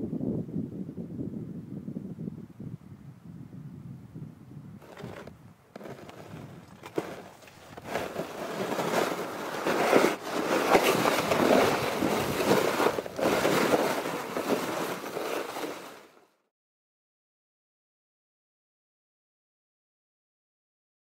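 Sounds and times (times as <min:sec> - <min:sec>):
sled scraping over snow: 0:04.8 - 0:16.3.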